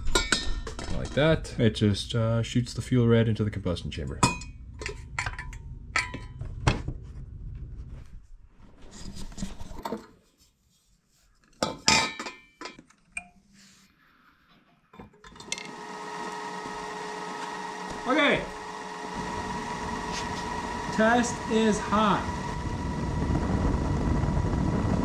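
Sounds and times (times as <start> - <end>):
multi-tone hum: 15.6 - 25.0.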